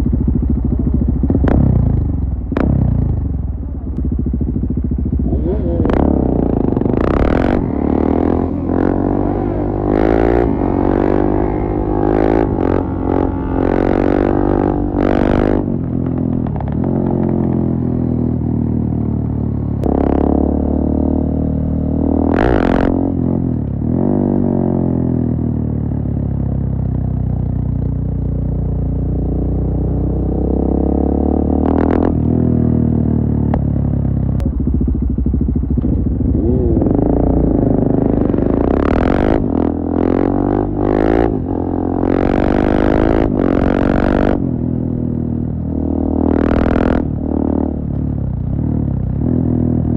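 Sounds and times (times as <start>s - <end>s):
motorcycle engine revving: 0.0s - 27.6s, 29.1s - 49.9s
loud exhaust bursts: 5.3s - 15.2s.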